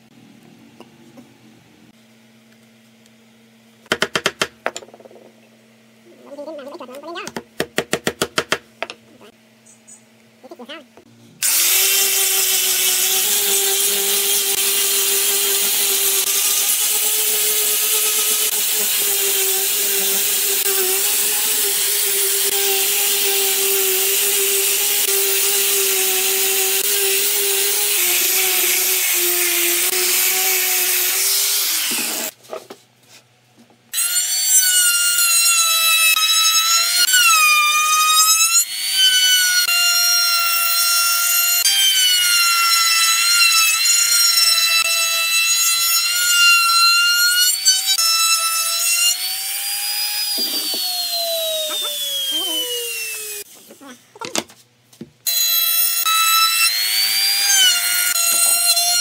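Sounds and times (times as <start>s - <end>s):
angle grinder sanding wood: 11.4s - 32.4s, 34.9s - 53.9s
trim router whine: 48.6s - 53.5s.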